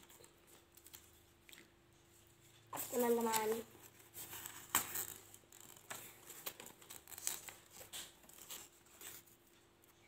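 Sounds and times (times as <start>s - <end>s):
paper figures rustling: 2.8s - 9.6s.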